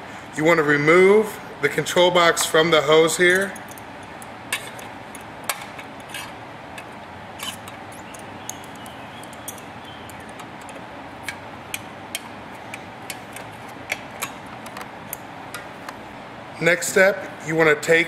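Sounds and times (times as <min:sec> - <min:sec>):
pliers on hose fitting: 0:03.3 - 0:15.7.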